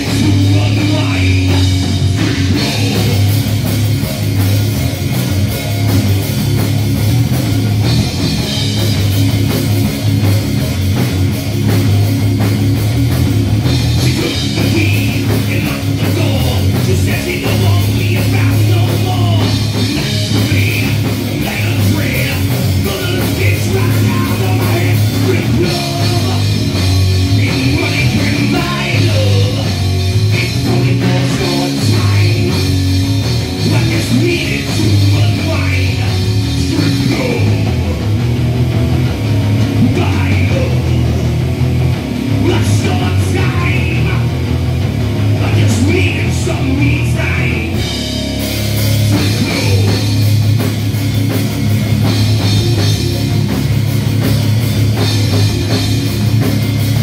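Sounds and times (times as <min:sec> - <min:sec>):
man singing into a microphone: 0:00.0 - 0:03.2, 0:14.0 - 0:26.7, 0:27.3 - 0:32.7, 0:33.6 - 0:37.9, 0:39.8 - 0:41.2, 0:42.4 - 0:44.4, 0:45.4 - 0:47.8, 0:49.1 - 0:50.2
bass guitar: 0:00.0 - 0:57.0
drum kit: 0:00.0 - 0:57.0
electric guitar: 0:00.0 - 0:57.0.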